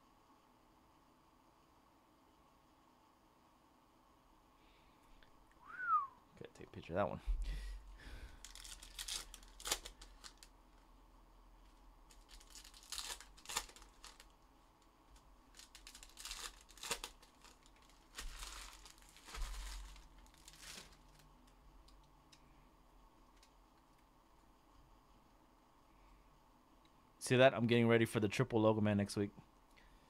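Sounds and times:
plastic and foil crinkling: 8.2 - 10.5, 11.6 - 14.4, 15.1 - 21.6.

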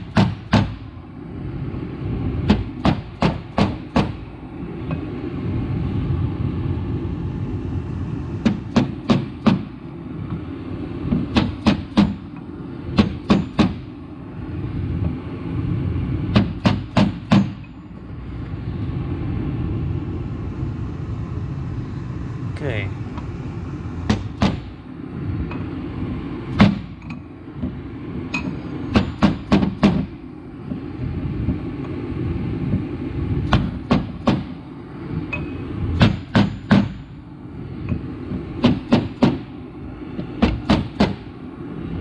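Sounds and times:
steady low hum: 0.0 - 42.0
hammer striking steel drift: 13.0 - 13.9, 16.3 - 17.8, 35.3 - 37.1.

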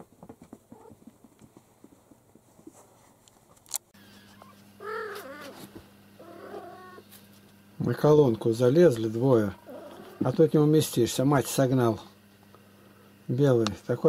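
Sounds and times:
paws pattering on carpet: 0.0 - 3.6
steady low hum: 0.0 - 14.0
kitten mewing: 4.8 - 7.0.

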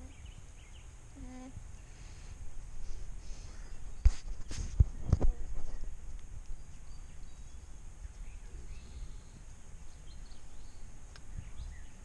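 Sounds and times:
faint bird chirps: 0.0 - 2.4, 5.3 - 12.0.

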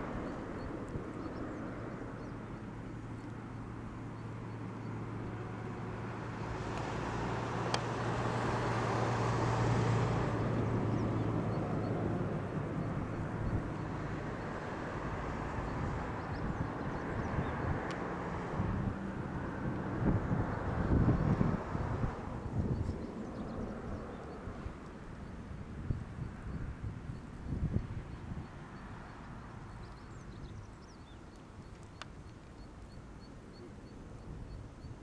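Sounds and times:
distant engine drone: 0.0 - 35.0
sharp tick: 7.7 - 7.9, 17.8 - 18.0.

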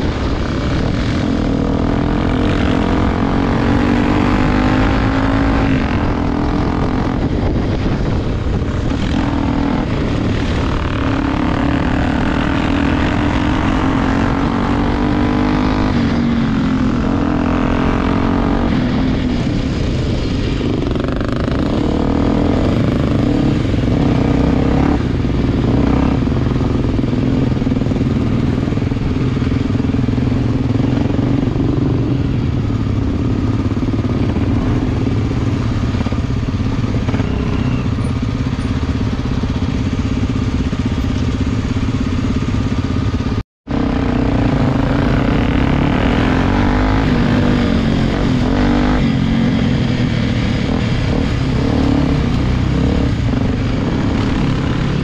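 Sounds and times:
dirt bike engine revving: 0.0 - 19.7, 20.6 - 55.0.

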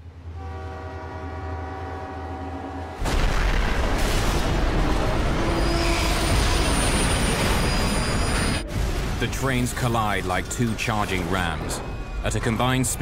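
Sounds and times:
train horn: 0.2 - 3.0, 5.0 - 8.7
loud crashing boom: 3.0 - 5.4.

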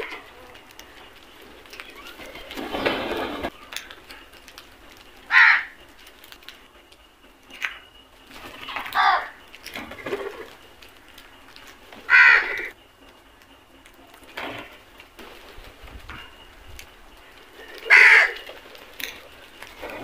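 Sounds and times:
crows cawing: 5.2 - 5.8, 8.7 - 9.4, 12.0 - 12.8, 17.6 - 18.6.

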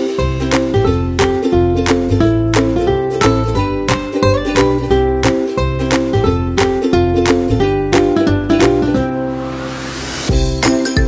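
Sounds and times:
plucked ukulele tune: 0.0 - 9.4
rising swish: 9.2 - 10.4.

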